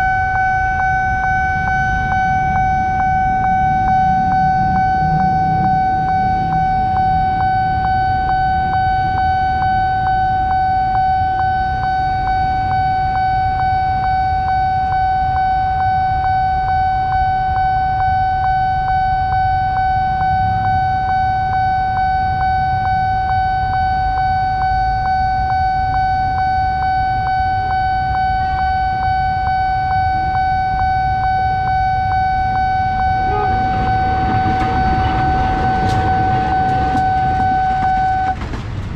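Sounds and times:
low rumble: 0.0s - 10.5s, 32.4s - 38.9s
crossing alarm high tone: 0.0s - 38.9s.

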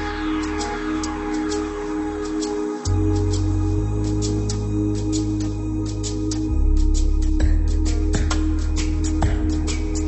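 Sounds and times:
held bass notes: 0.0s - 10.0s
instrumental music with steady beat: 0.0s - 10.0s.

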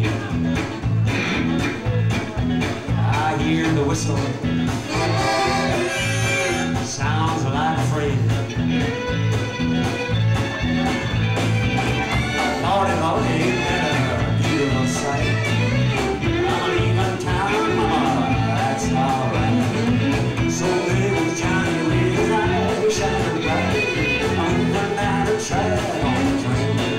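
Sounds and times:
bass guitar: 0.0s - 26.9s
electric guitars: 0.0s - 26.9s
steady drum beat: 0.0s - 26.9s
fiddle: 4.0s - 7.0s, 8.4s - 26.9s.

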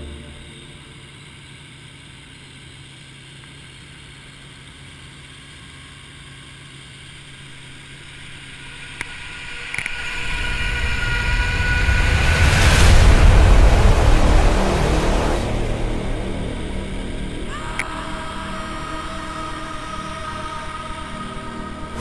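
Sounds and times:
high whine: 0.0s - 2.5s, 7.0s - 22.0s
helicopter engine and rotor hum: 5.6s - 10.4s.

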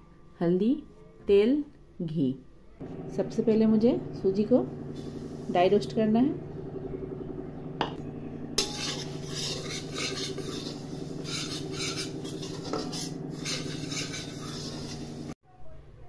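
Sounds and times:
steady low hum: 2.8s - 15.4s
metal spatula scraping a metal pan: 8.6s - 15.4s.

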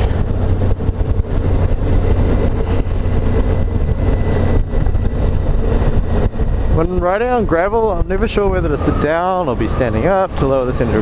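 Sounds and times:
motorcycle engine running: 0.0s - 8.7s.

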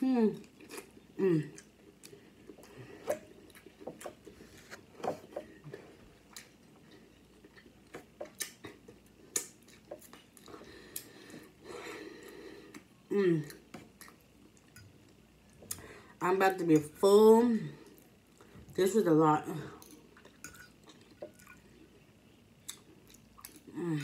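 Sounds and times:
person chewing food: 0.4s - 15.9s, 19.8s - 22.0s, 22.6s - 23.8s.

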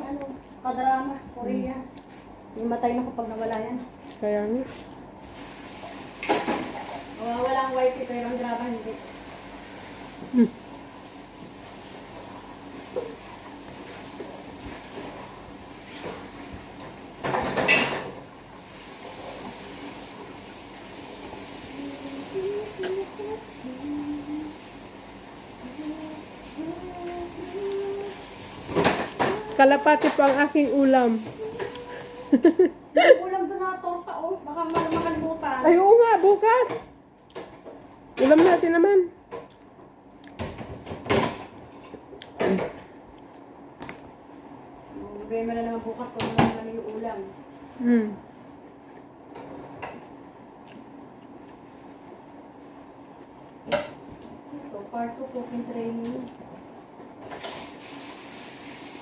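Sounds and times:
room noise hiss: 4.6s - 59.0s
person humming: 21.7s - 24.7s, 25.6s - 28.4s, 29.2s - 30.1s, 31.2s - 32.6s
chewing clicks and smacks: 50.1s - 51.6s.

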